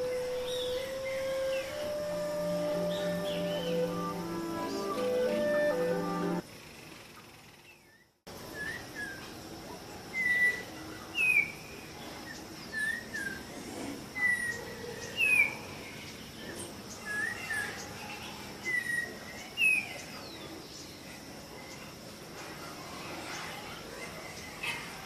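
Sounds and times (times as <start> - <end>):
bird whistling song: 0.0 - 6.4, 7.7 - 9.3, 10.1 - 11.7, 12.3 - 13.4, 14.2 - 15.6, 17.0 - 17.8.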